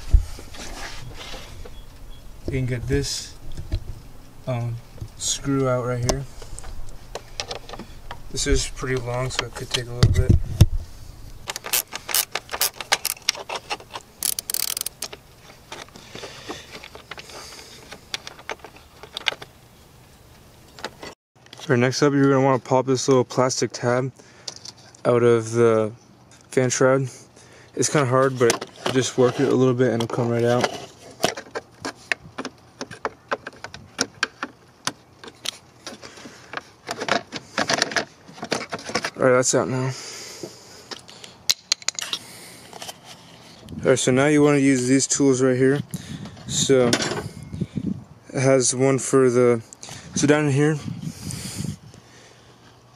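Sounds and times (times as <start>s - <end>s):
hand ratchet clicking: 11.5s - 15.2s.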